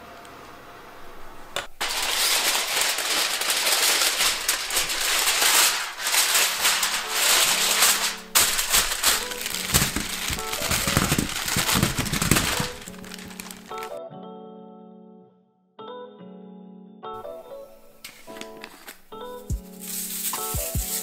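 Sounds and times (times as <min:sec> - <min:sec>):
potatoes tumbling onto a pan: 0:01.6 - 0:13.9, 0:18.1 - 0:21.0
aluminium foil crinkling and tearing: 0:01.7 - 0:14.0, 0:18.0 - 0:21.0.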